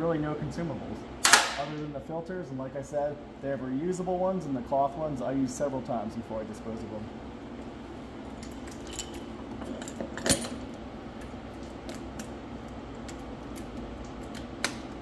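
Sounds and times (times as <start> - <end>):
low shop hum: 0.0 - 15.0.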